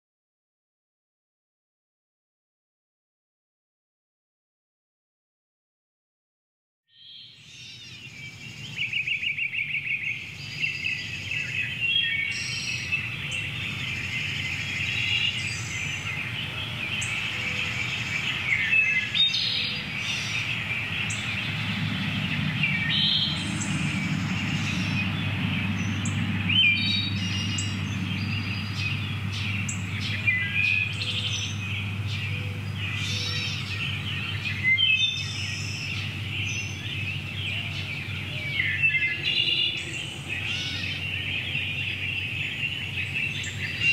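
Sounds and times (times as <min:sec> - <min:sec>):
songbirds singing and chirping: 0:06.9 - 0:43.9
low steady rumble: 0:10.2 - 0:43.9.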